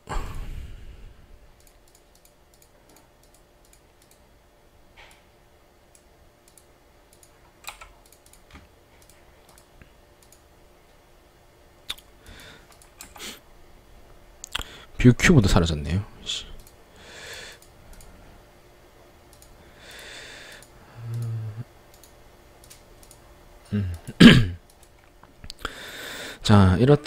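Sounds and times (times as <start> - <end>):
computer mouse clicks: 1.6 - 4.2, 5.9 - 10.4, 11.9 - 13.2, 16.6 - 16.8, 17.6 - 18.1, 19.3 - 21.3, 21.9 - 23.2, 24.6 - 25.6.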